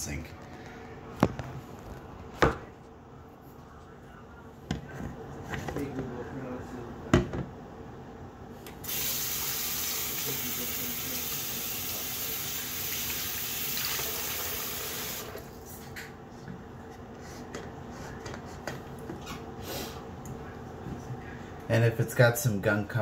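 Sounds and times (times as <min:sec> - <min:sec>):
tap water running into basin: 0:08.9 - 0:15.5.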